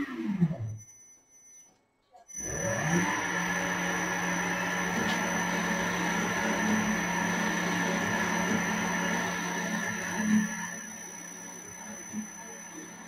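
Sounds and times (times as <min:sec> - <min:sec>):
lathe spindle hum: 0:02.3 - 0:13.0
high-pitched whine: 0:08.4 - 0:13.0.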